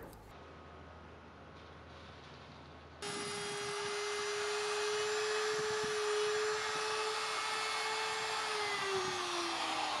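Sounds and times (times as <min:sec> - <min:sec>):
router cutting wood with high whine: 0:03.0 - 0:10.0.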